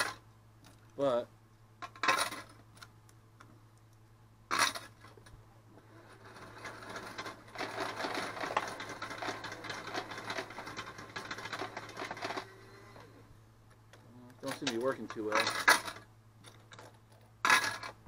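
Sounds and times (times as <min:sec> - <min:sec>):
coin sorter rattling: 0:01.8 - 0:02.6, 0:04.5 - 0:05.0, 0:05.9 - 0:12.7, 0:14.4 - 0:16.1, 0:16.7 - 0:18.0
coins clattering: 0:01.8 - 0:02.6, 0:04.5 - 0:05.0, 0:06.0 - 0:12.5, 0:14.4 - 0:18.0.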